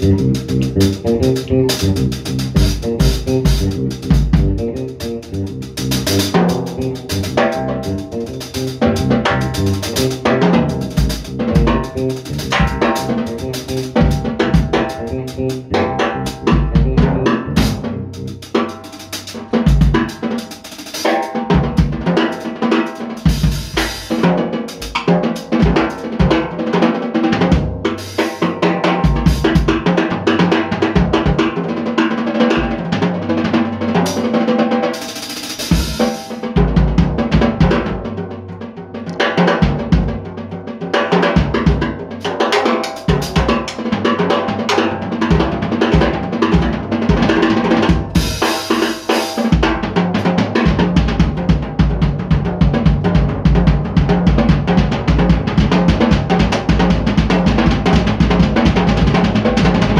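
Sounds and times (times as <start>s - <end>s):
deep bass drum hits: 0.0s - 18.3s.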